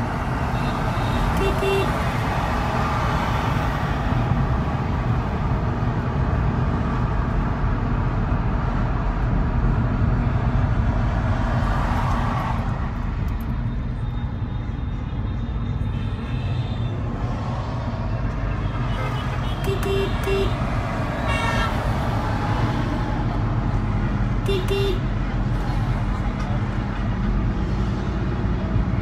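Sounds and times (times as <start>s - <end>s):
car road and engine rumble: 0.0s - 29.0s.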